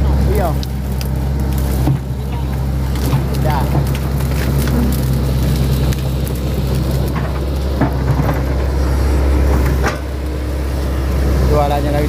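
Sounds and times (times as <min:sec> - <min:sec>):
excavator diesel engine running: 0:00.0 - 0:12.0
knocks and clatter: 0:01.7 - 0:08.8.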